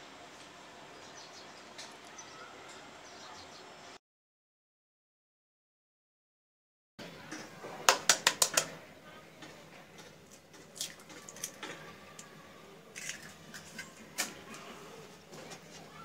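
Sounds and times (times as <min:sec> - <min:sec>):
egg cracking against ceramic bowl: 0:07.9 - 0:08.8.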